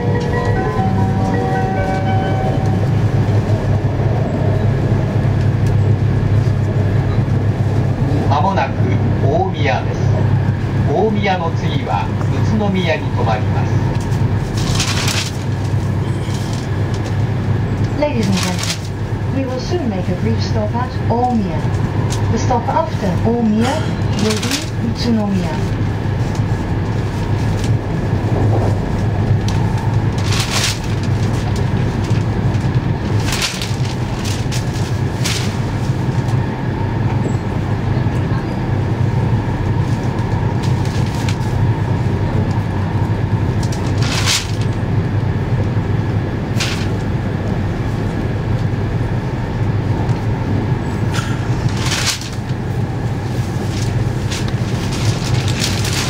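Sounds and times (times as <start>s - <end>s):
train cabin low rumble: 0.0s - 56.0s.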